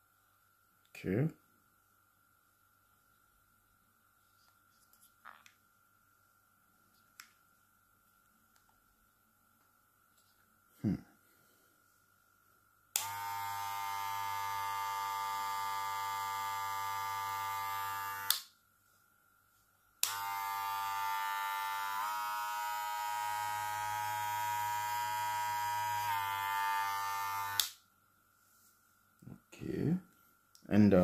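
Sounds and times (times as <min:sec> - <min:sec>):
hair clipper running: 0:13.0 - 0:18.5, 0:20.0 - 0:27.8.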